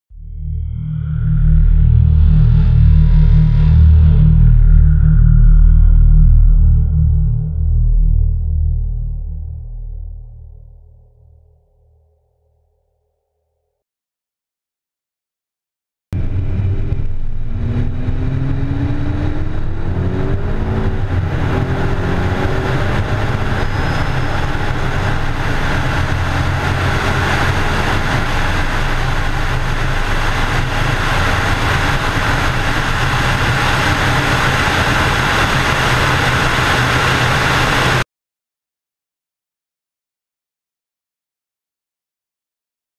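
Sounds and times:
car engine accelerating: 0.2s - 9.6s, 16.2s - 38.0s
loud wind rush: 16.2s - 38.0s.

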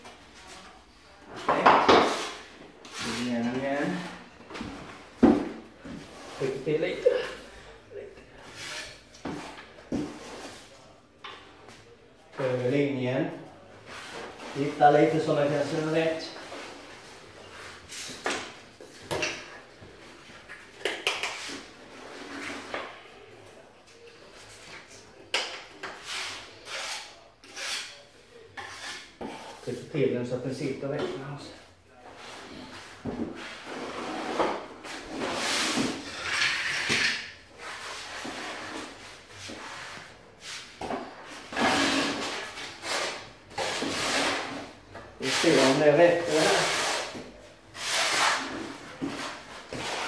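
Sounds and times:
trowel scraping adhesive in bucket: 41.4s - 47.2s.

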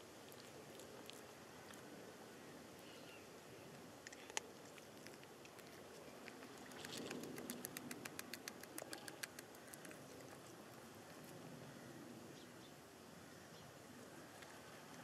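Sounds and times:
cat crunching dry kibble: 3.8s - 11.3s.

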